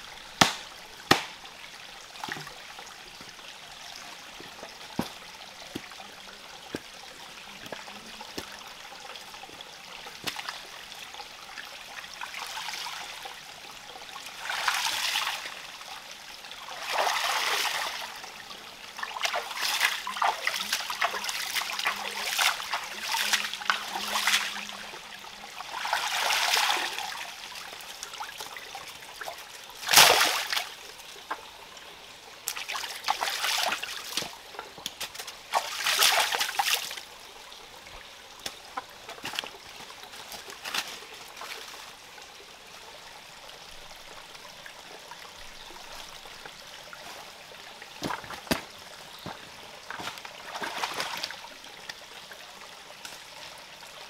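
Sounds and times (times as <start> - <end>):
stream trickling: 0.0 - 54.0
splashing in shallow water: 29.2 - 30.8, 32.5 - 34.4, 35.0 - 37.0, 48.0 - 51.6.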